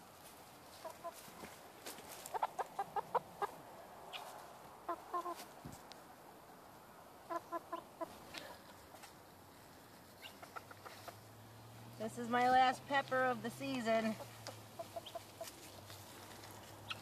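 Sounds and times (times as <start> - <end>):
hen clucking: 0.7 - 1.3, 2.2 - 5.5, 7.2 - 9.0, 10.1 - 11.3, 14.0 - 15.8.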